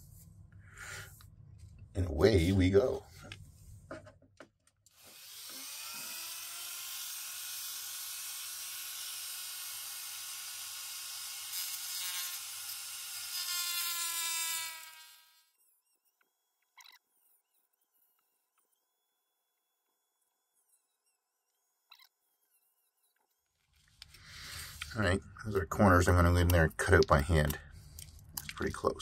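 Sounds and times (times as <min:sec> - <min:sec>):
rotary tool whining: 0:04.9 - 0:15.5.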